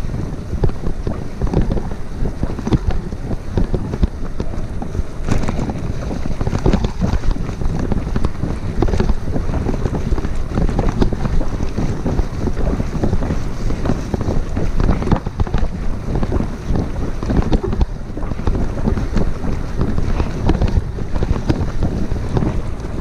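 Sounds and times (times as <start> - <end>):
bike tyres rumbling on dirt: 0.0 - 23.0
wind buffeting microphone: 0.0 - 23.0.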